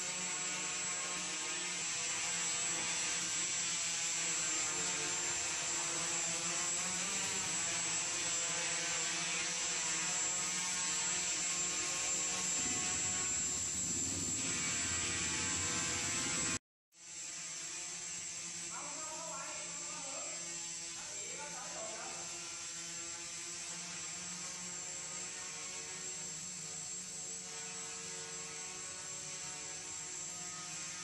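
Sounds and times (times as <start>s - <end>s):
drone propellers humming: 9.8s - 16.6s.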